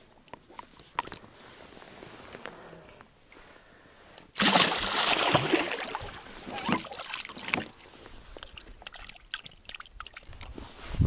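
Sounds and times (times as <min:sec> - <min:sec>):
water splashing at a boat: 0:04.4 - 0:10.6.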